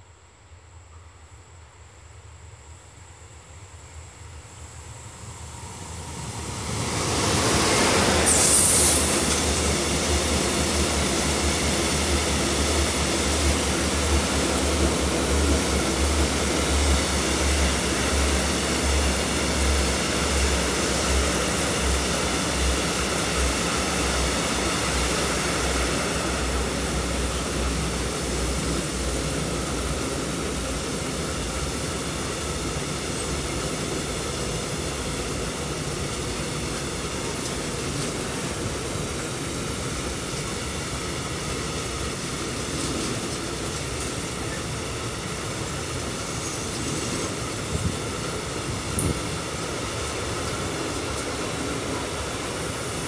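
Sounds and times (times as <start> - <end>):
freight train passing: 0.0 - 53.0
wheels rumbling on rails: 4.6 - 53.0
brief high hiss: 8.2 - 9.4.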